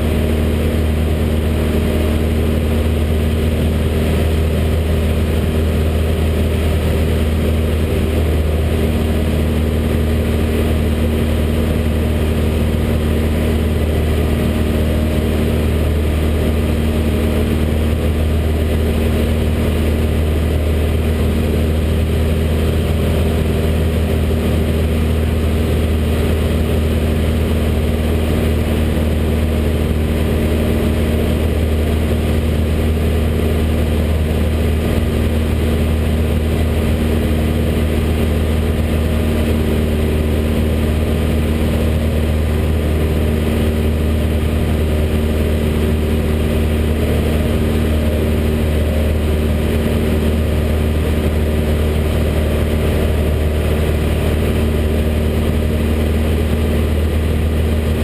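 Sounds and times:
light aircraft engine in cockpit: 0.0s - 58.0s.

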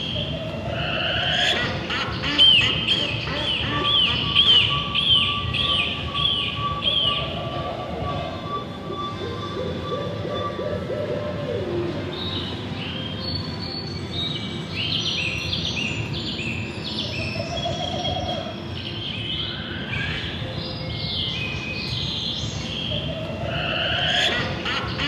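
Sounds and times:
street noise: 0.0s - 25.0s
high bird-like chirps: 2.5s - 10.9s.

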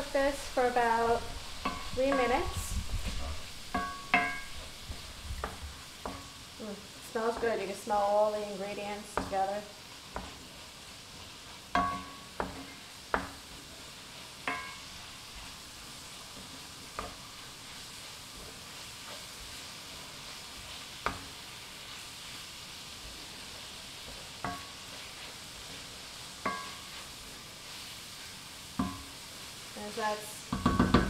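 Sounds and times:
meat sizzling in a skillet: 0.0s - 31.0s
wooden spoon knocking on pan: 1.6s - 2.6s, 3.7s - 4.7s, 5.4s - 6.3s, 9.1s - 9.5s, 10.1s - 10.4s, 11.7s - 13.4s, 14.4s - 14.9s, 24.4s - 24.8s, 26.4s - 26.8s, 28.8s - 29.1s, 30.5s - 31.0s.

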